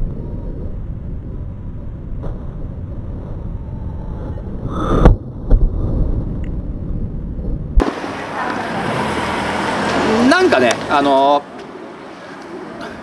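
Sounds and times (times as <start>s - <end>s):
low rumble: 0.0s - 8.2s.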